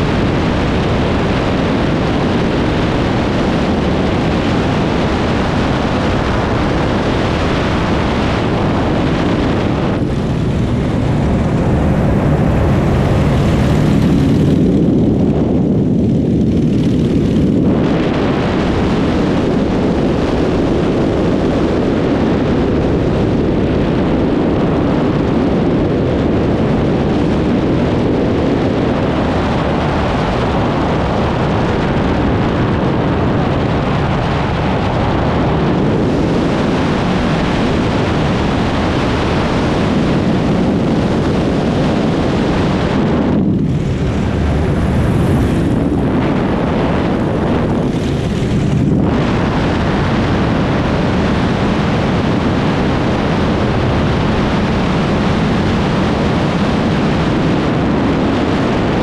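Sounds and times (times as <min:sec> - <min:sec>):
constant rush of noise: 0:00.0 - 0:59.0
propeller aircraft engine drone: 0:00.0 - 0:59.0.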